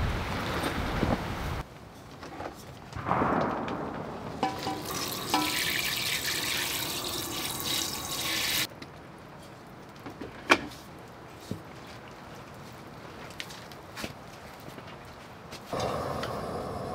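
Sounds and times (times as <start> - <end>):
hose spraying into metal pot: 4.6 - 8.7.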